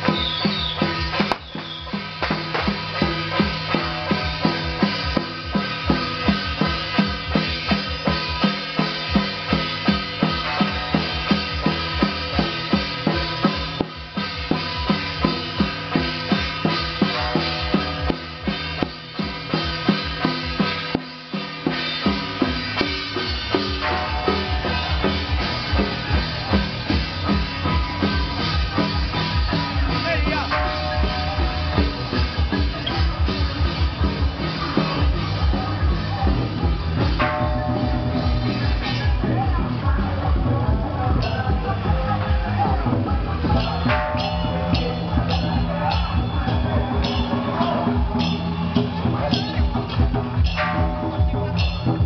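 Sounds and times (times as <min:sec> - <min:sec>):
steady percussion beat: 0:00.0 - 0:52.0
sustained melody: 0:41.1 - 0:52.0.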